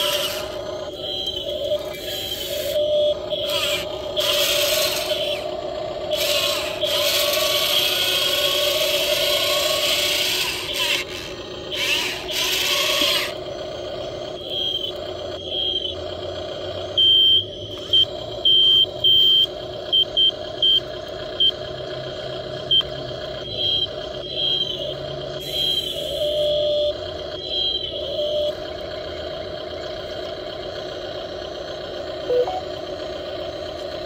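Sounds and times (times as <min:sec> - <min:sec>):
small electric motors whining: 0:00.0 - 0:18.8, 0:20.0 - 0:34.0
short high beeps: 0:32.3 - 0:32.7.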